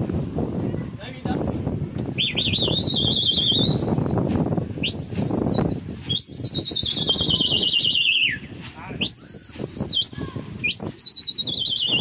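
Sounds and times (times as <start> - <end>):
shrill warbling whistle: 2.2 - 8.4, 9.0 - 12.0.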